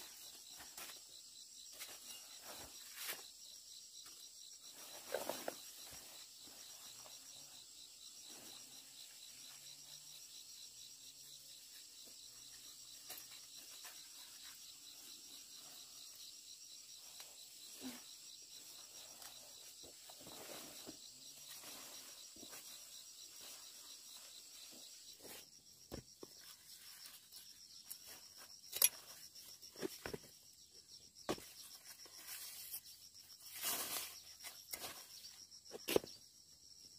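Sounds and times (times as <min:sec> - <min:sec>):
insects trilling: 0:00.0 - 0:36.9.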